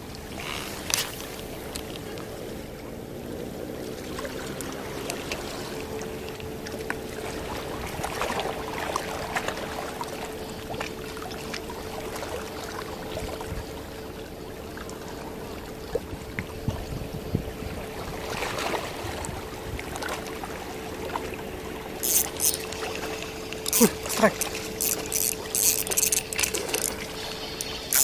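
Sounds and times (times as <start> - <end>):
small water splashes: 0.0 - 13.5
steady hum: 5.7 - 28.0
small waves lapping on rocks: 14.7 - 28.0.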